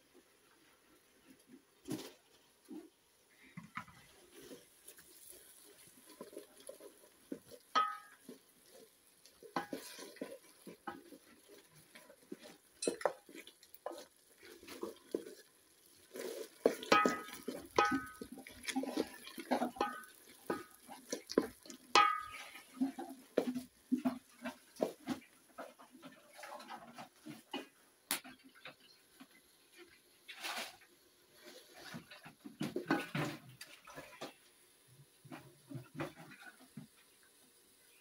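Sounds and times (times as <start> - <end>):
wooden spoon scraping a pot: 3.3 - 27.7, 28.5 - 34.4
spoon knocking against pot: 7.8 - 8.3, 16.8 - 18.3, 21.4 - 22.4.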